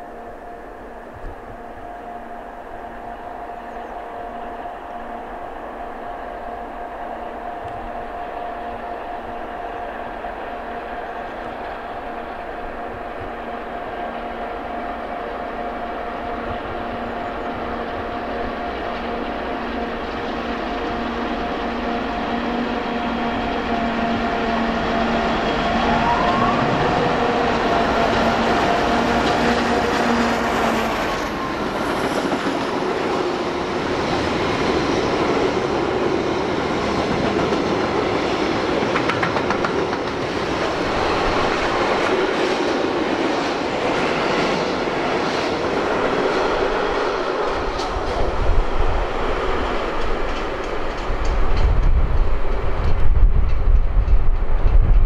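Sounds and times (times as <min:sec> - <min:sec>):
diesel locomotive engine: 0:00.0 - 0:55.0.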